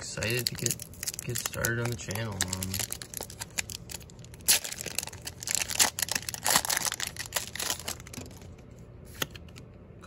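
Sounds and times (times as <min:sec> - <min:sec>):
foil wrapper crinkling: 0:00.2 - 0:09.3.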